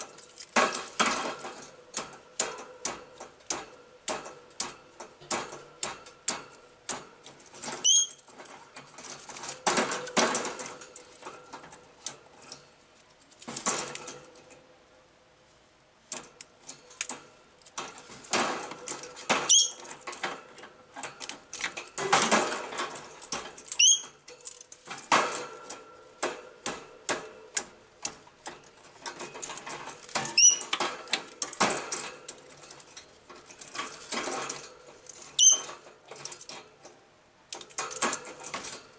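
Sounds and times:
high squeaks: 7.8s - 8.3s, 19.4s - 19.9s, 23.7s - 24.2s, 30.2s - 30.8s, 35.3s - 35.8s.

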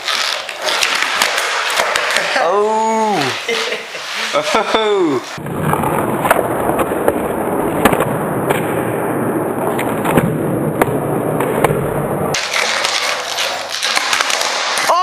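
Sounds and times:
skateboard wooden clacks: 0.0s - 2.4s, 10.8s - 15.0s
skateboard wheels rolling on concrete: 0.0s - 15.0s.

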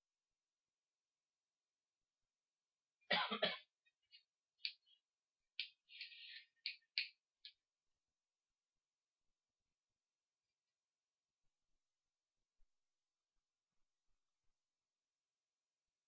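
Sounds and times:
person clearing throat: 3.1s - 3.7s.

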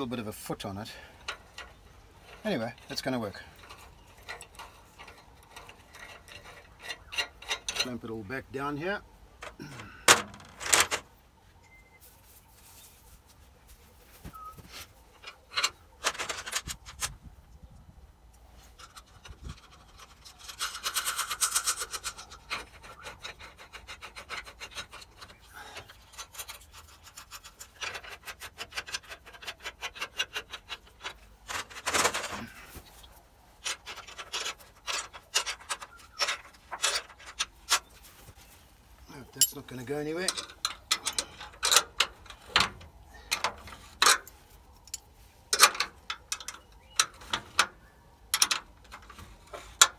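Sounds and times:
metal tools clicking and knocking: 1.2s - 8.1s, 39.3s - 49.9s
rasping metal scrapes: 1.2s - 8.1s, 18.7s - 32.3s.

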